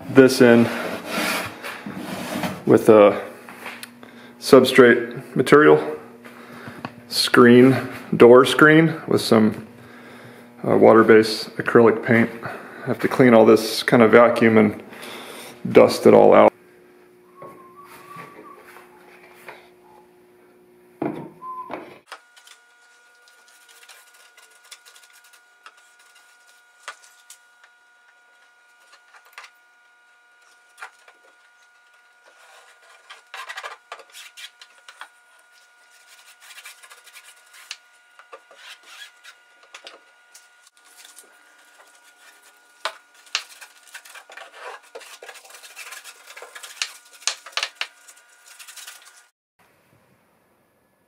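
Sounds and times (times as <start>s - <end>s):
paintbrush bristles scratching: 35.5s - 37.8s, 40.8s - 49.3s.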